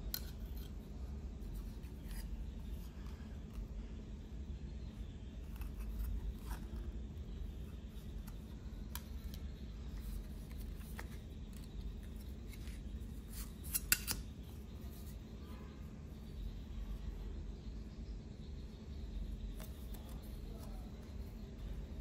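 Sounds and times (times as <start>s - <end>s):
steady low hum: 0.0s - 22.0s
metal cards sliding: 10.0s - 14.3s.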